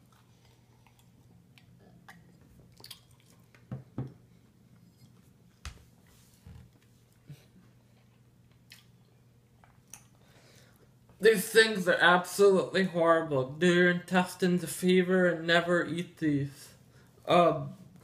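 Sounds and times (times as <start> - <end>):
person gulping and chewing: 0.0 - 4.3, 7.2 - 10.9.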